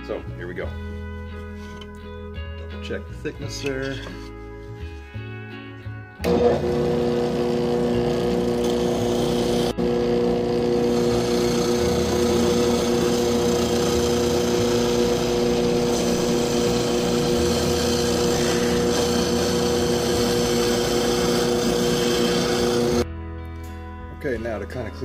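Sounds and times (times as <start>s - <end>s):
cutter grinding: 6.2s - 23.0s
drill press motor hum: 6.2s - 23.0s.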